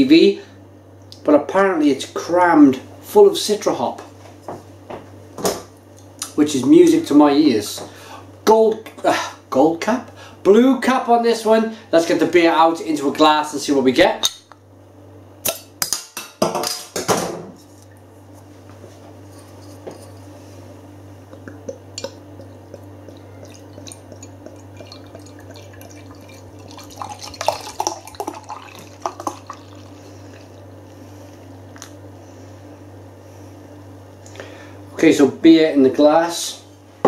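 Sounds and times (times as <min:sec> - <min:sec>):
beer pouring into glass: 0:21.4 - 0:30.7.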